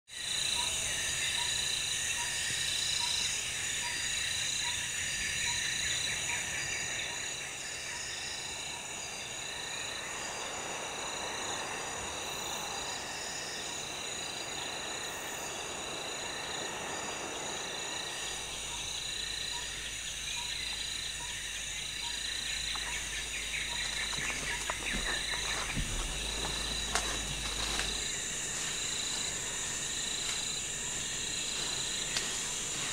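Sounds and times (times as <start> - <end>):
insects trilling: 0.1 - 32.9
faint clicks and rustles: 23.6 - 32.9.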